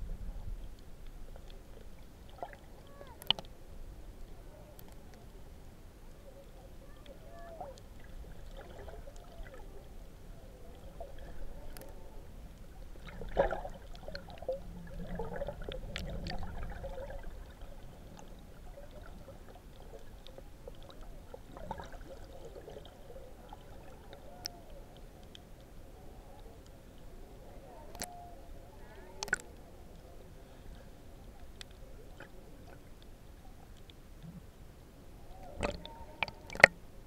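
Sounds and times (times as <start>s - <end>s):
muffled underwater water movement: 0.0s - 37.0s
faint clicks: 0.7s - 3.6s, 4.2s - 9.6s, 10.6s - 16.7s, 22.8s - 27.1s, 27.7s - 28.2s, 28.8s - 34.4s, 35.4s - 36.8s
bubbles: 8.0s - 9.6s, 13.0s - 24.3s, 35.4s - 36.8s.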